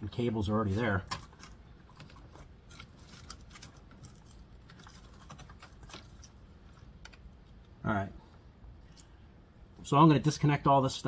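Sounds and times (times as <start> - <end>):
wiring rustling: 0.4 - 7.8.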